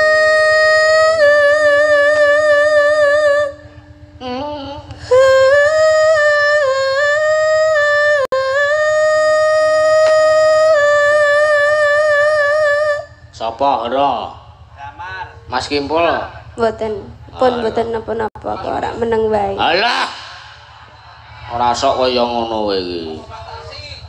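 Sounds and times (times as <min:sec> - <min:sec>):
woman singing with vibrato: 0:00.0 - 0:13.4, 0:16.6 - 0:19.7
faint instrumental notes: 0:00.0 - 0:24.0
low hum: 0:00.0 - 0:24.0.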